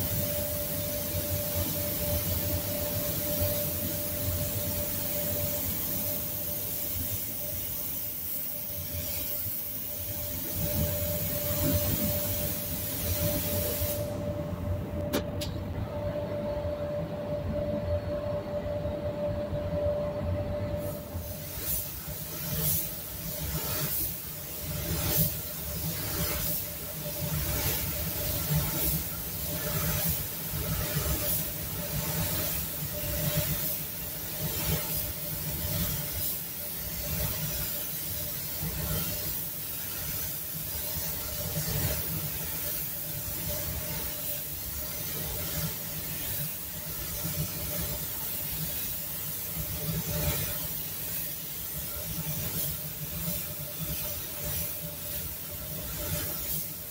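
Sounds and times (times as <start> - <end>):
spray gun air hissing: 0.0 - 14.3, 20.8 - 56.9
ventilation hum: 0.0 - 56.9.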